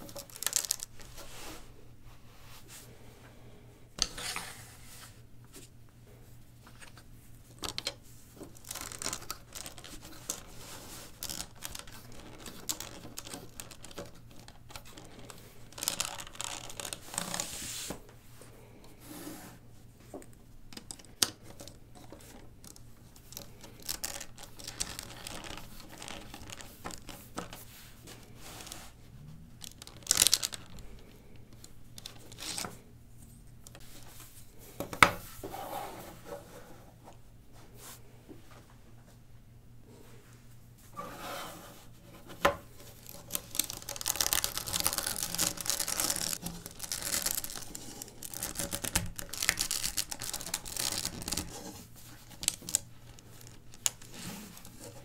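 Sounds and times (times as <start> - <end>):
plastic bricks clicking and scraping: 0.0 - 1.0, 7.6 - 17.5, 20.7 - 27.5, 29.6 - 32.7, 42.4 - 55.0
faint steady hum: 0.0 - 55.0.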